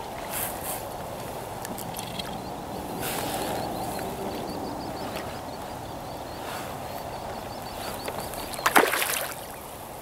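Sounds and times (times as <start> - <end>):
hiss of wind and water: 0.0 - 10.0
fish splashing at surface: 8.6 - 9.4.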